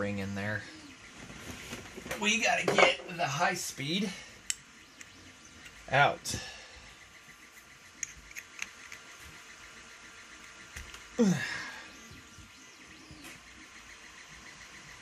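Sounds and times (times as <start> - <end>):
small tool clicking on metal: 8.0 - 9.1
person sighing: 11.2 - 12.0.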